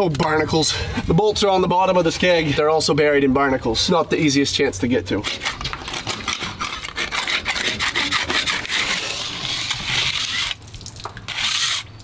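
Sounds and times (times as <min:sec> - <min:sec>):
barnacles scraped off metal: 0:05.2 - 0:10.6, 0:11.3 - 0:11.9.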